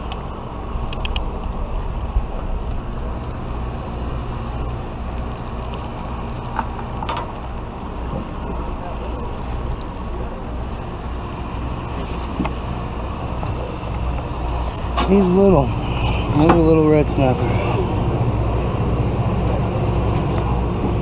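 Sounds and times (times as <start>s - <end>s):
wind on microphone: 0.0s - 6.4s
boat engine drone: 0.0s - 21.0s.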